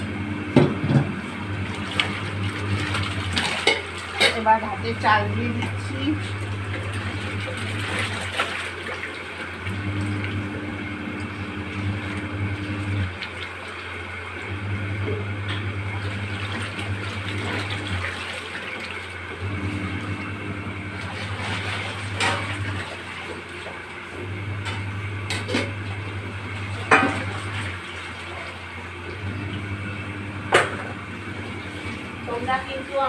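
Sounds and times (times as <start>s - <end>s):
water pouring into a steel sink: 5.8s - 10.4s, 11.8s - 14.6s, 16.0s - 20.1s.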